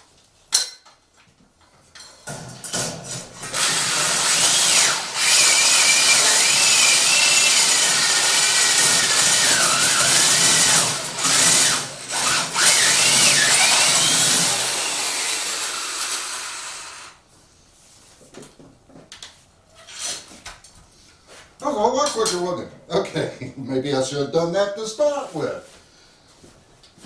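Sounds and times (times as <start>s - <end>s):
electric drill grinding through metal: 3.2s - 17.2s.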